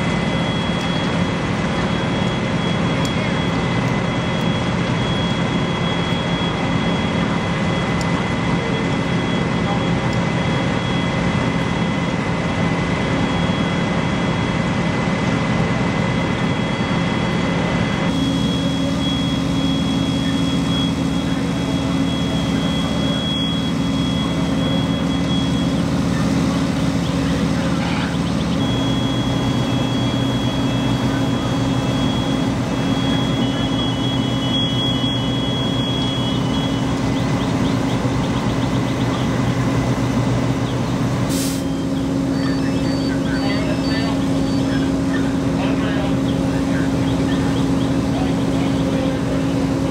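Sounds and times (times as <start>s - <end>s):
diesel engines droning: 0.0s - 49.9s
faint high whine: 16.2s - 40.6s.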